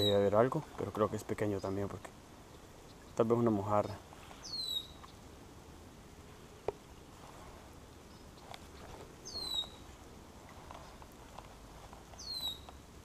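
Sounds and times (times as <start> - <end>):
bird whistled call: 0.0 - 0.2, 4.4 - 5.1, 9.3 - 9.8, 12.2 - 12.7
light rain on water: 0.3 - 13.0
faint ticks: 10.4 - 12.8.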